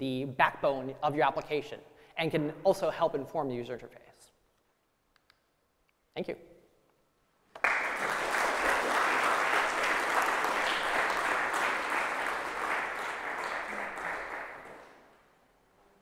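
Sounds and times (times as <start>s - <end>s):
audience applauding: 7.5s - 15.2s.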